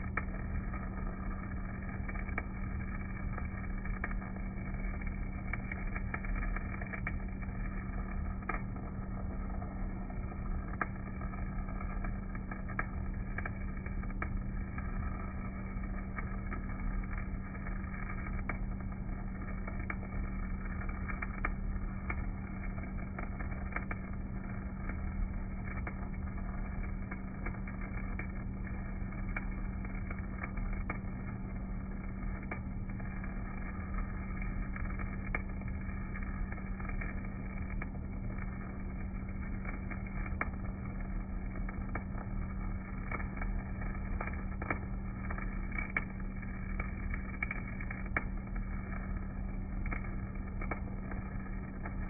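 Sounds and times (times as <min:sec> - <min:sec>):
welding arc crackling and popping: 0:00.0 - 0:52.0
welding machine hum: 0:00.0 - 0:52.0.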